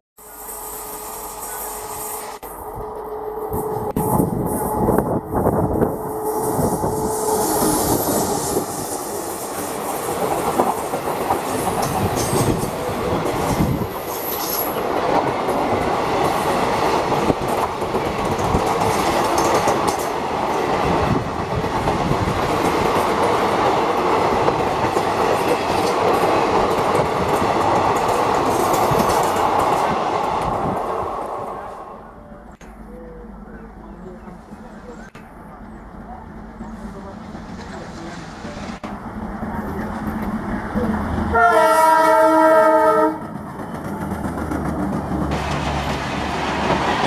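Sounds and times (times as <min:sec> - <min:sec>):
train wheels clattering over rail joints: 0:09.4 - 0:20.7, 0:43.2 - 0:47.0.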